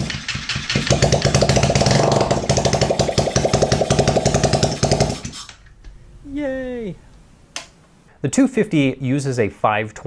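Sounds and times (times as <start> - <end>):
motorcycle engine starting and running: 0.0 - 5.4.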